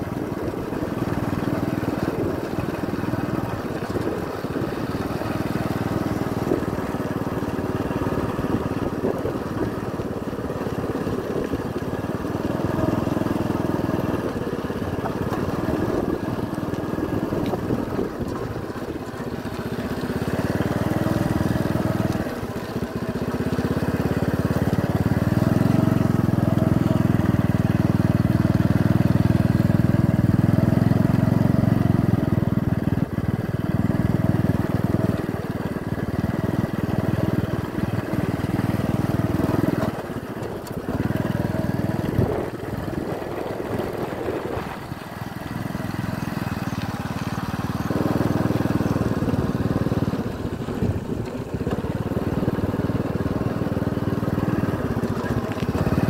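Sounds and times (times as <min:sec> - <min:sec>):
road and wind noise: 0:00.0 - 0:56.0
vehicle engine running: 0:00.0 - 0:56.0.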